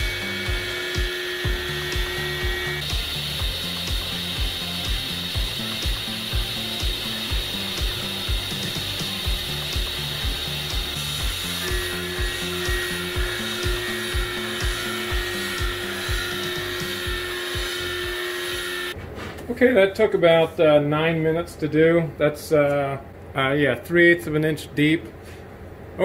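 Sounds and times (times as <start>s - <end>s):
milling machine cutting steel: 0.0s - 19.0s.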